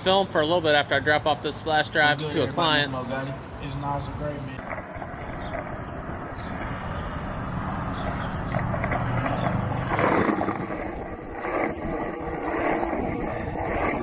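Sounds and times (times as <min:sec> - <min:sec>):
traffic engine hum: 0:00.5 - 0:14.0
wind on microphone: 0:04.8 - 0:14.0.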